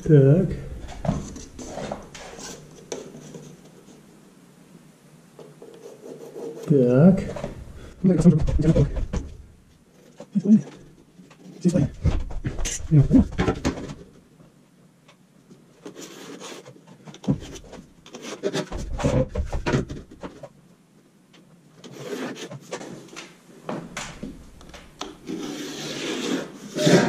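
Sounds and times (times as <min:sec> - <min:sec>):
rubbing and scraping on a wall: 0:00.8 - 0:04.1, 0:05.6 - 0:07.5, 0:15.8 - 0:20.6, 0:21.8 - 0:23.1, 0:25.0 - 0:27.0.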